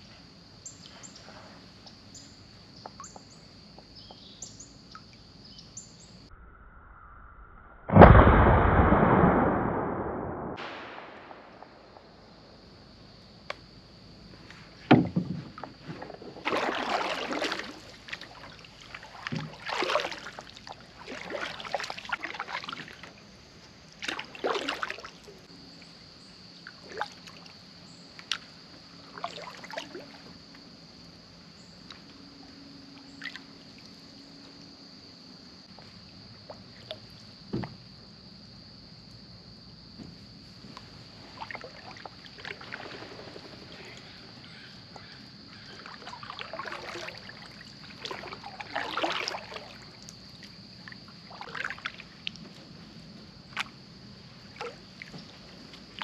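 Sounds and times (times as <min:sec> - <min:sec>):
paddle strokes splashing: 0:14.5 - 0:25.4, 0:41.2 - 0:44.2, 0:44.9 - 0:52.8
paddle knocking against hull: 0:14.8 - 0:17.6, 0:19.2 - 0:20.0.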